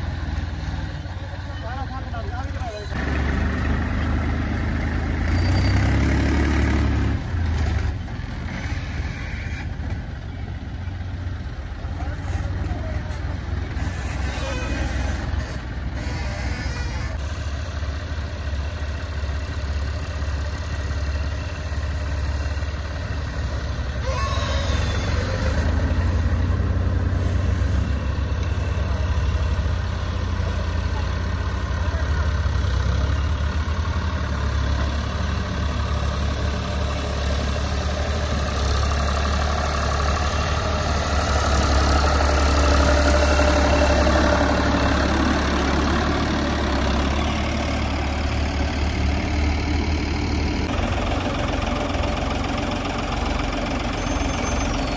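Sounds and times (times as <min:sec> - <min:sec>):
diesel tractor engines running: 0:00.0 - 0:54.9.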